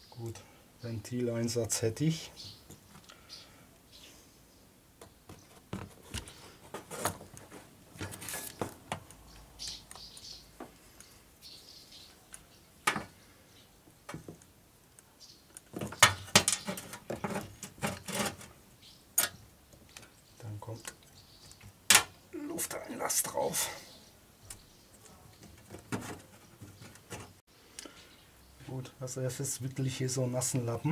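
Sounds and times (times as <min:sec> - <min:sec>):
metal tools clicking and clattering: 0:19.2 - 0:19.4.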